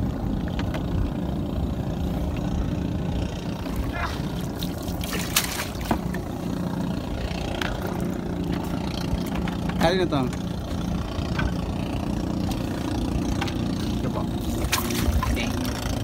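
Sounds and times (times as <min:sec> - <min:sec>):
boat engine idling: 0:00.0 - 0:16.0.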